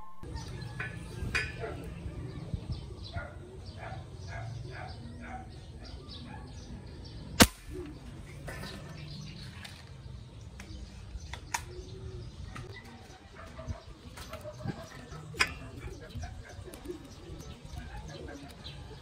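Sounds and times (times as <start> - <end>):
spear gun firing crack: 7.4 - 7.8.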